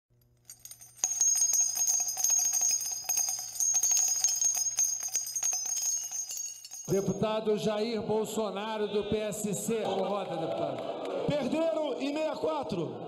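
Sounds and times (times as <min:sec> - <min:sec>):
small bells jingling: 0:00.4 - 0:07.4.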